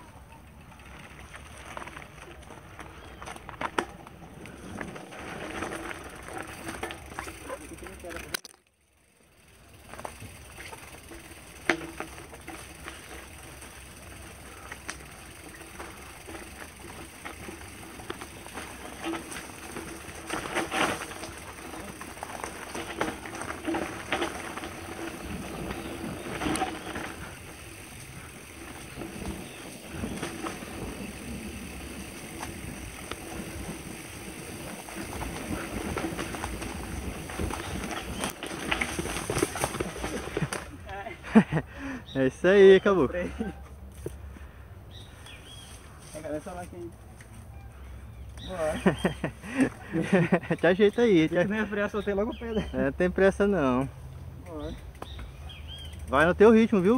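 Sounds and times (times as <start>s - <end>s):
bike tyres rolling on dirt: 0.0s - 56.9s
bike frame rattling: 0.2s - 42.2s, 48.4s - 53.8s, 54.4s - 56.9s
wheels knocking over bumps: 9.4s - 41.5s.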